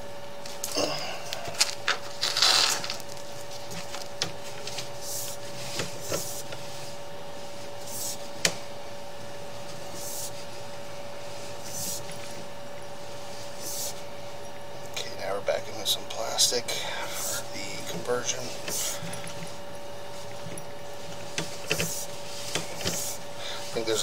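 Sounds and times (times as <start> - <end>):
steady hum: 0.0 - 24.0
short rustling noises: 1.4 - 8.4.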